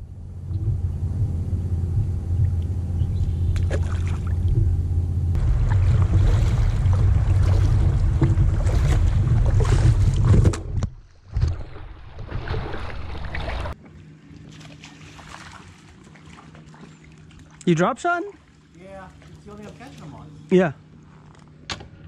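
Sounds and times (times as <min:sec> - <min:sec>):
wind rumbling on microphone: 0:00.0 - 0:11.5
water splashing along kayak: 0:02.4 - 0:20.4.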